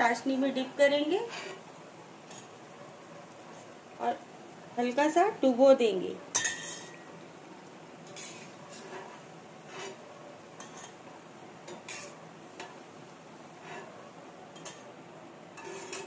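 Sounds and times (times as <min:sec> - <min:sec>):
oil sizzling faintly: 0:00.0 - 0:16.0.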